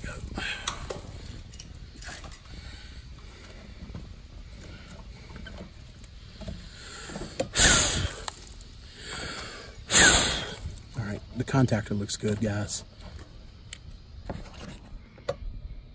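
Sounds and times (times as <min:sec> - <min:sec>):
short rasping bursts: 0:07.6 - 0:08.3, 0:09.9 - 0:10.7.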